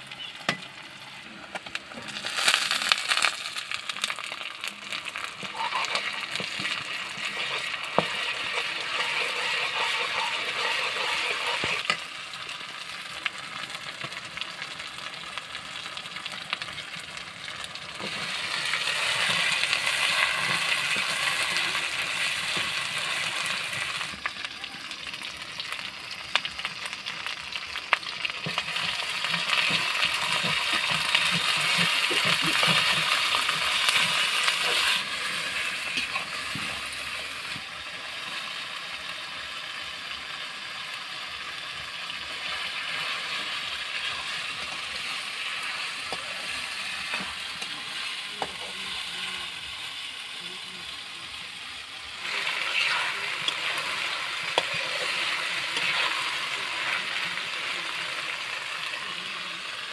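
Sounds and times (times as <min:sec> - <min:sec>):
onions sizzling in oil: 0:00.0 - 0:59.9
steel spoon scraping pan: 0:05.4 - 0:12.0.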